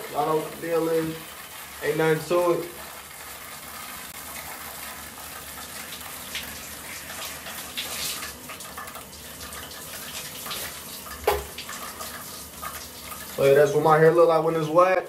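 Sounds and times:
shower spray hissing: 0:05.8 - 0:08.4
water splashing: 0:05.8 - 0:13.8.

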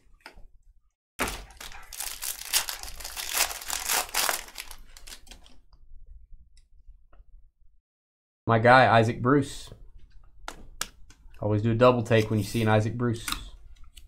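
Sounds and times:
wrapper tearing and crinkling: 0:01.2 - 0:05.5.

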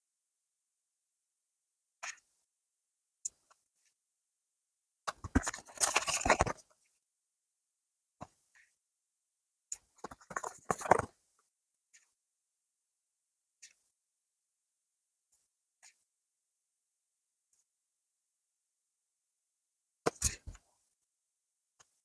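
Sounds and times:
cards rustling and clicking: 0:05.1 - 0:06.6, 0:10.0 - 0:11.1.

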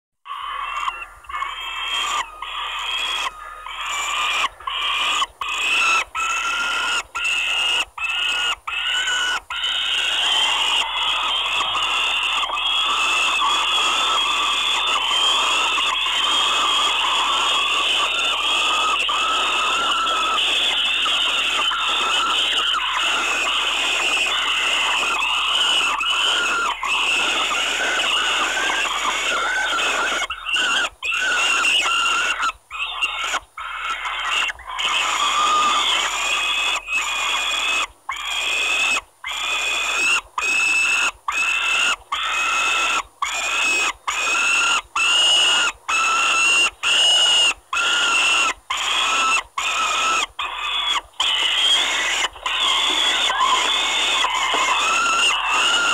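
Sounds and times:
falcon nestlings screaming: 0:00.3 - 0:55.9.

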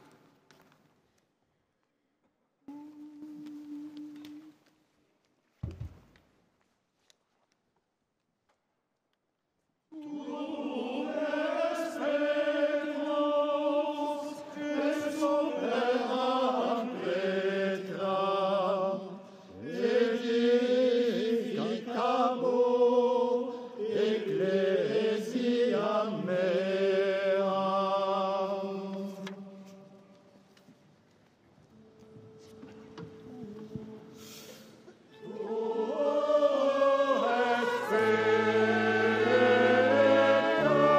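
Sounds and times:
voices chanting in church: 0:09.9 - 0:30.3, 0:31.8 - 0:40.9.

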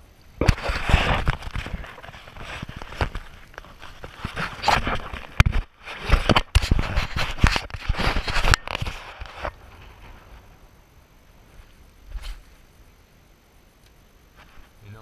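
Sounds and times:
faint steady hiss: 0:00.0 - 0:15.0
rain jacket rubbing: 0:00.4 - 0:10.5
camera handling scraping and rustling: 0:00.4 - 0:10.6.

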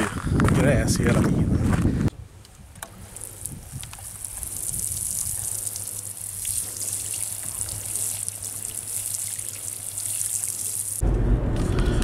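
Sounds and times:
watering can spray hissing: 0:03.0 - 0:11.0.

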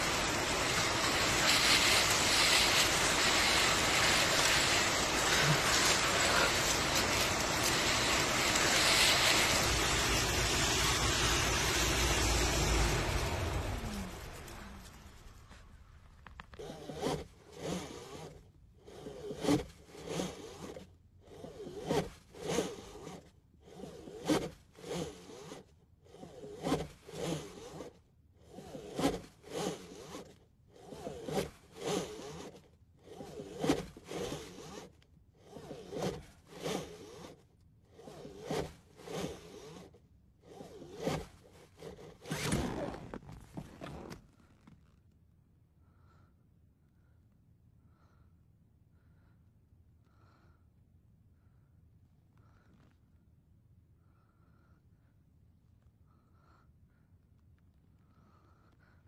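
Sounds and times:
hand tool scraping: 0:00.0 - 0:44.7.

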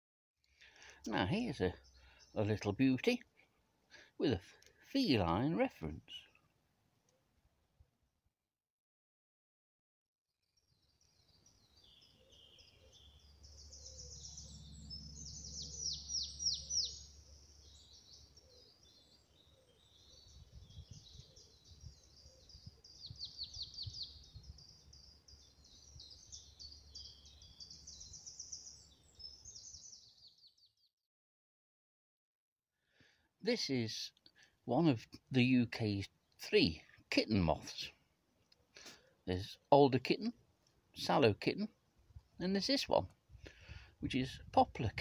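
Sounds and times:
songbirds singing: 0:00.4 - 0:07.2, 0:10.4 - 0:30.9, 0:32.9 - 0:45.0.

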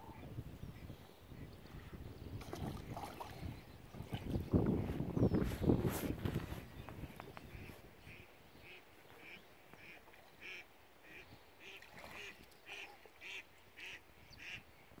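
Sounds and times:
faint duck quacks: 0:07.5 - 0:14.6.

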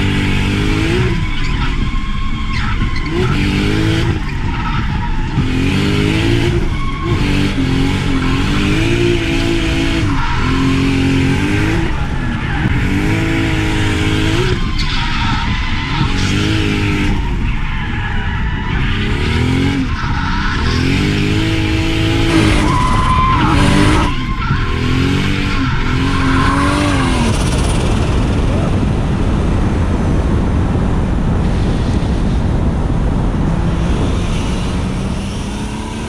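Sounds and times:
turbocharged engine revving: 0:00.0 - 0:29.8, 0:31.5 - 0:36.0
tyres squealing: 0:00.8 - 0:27.8.

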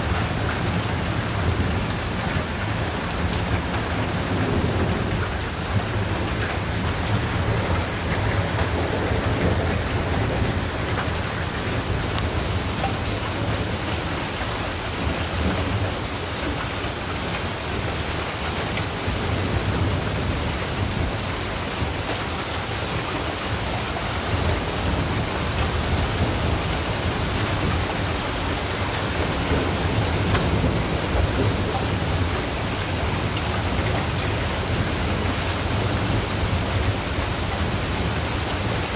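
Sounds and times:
low rumble of thunder: 0:00.0 - 0:38.9
steady rain falling: 0:00.0 - 0:38.9.

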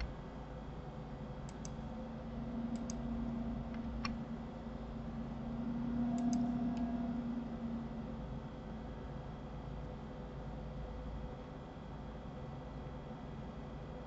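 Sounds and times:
steady low hum: 0:00.0 - 0:14.0
computer mouse clicks: 0:01.4 - 0:01.8, 0:02.7 - 0:03.0, 0:06.1 - 0:06.9.

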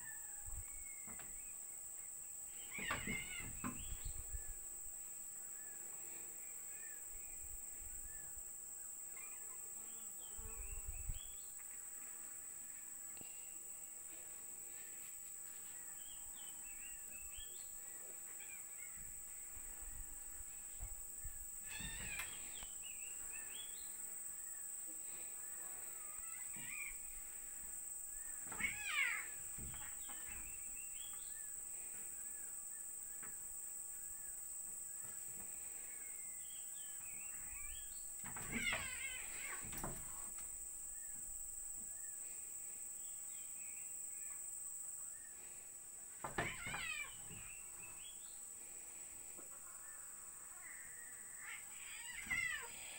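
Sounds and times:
faint chirps: 0:00.0 - 0:52.9
cats play-fighting: 0:02.6 - 0:04.1, 0:18.0 - 0:20.9, 0:21.6 - 0:22.7, 0:25.7 - 0:27.6, 0:28.2 - 0:30.6, 0:37.4 - 0:40.5, 0:46.2 - 0:47.5, 0:51.2 - 0:52.9
high-pitched insect buzz: 0:05.5 - 0:45.6, 0:46.2 - 0:52.9.

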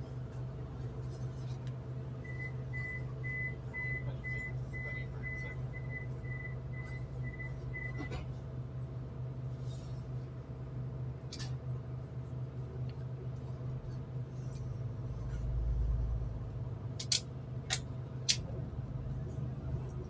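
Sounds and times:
low train hum: 0:00.0 - 0:20.0
train door warning beeps: 0:02.2 - 0:08.1.

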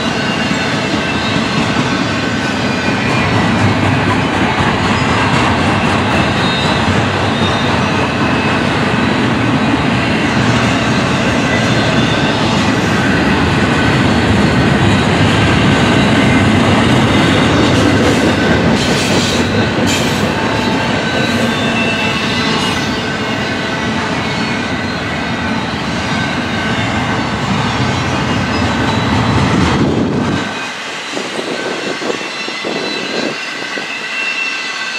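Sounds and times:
freight train wheels clattering: 0:00.0 - 0:34.7.

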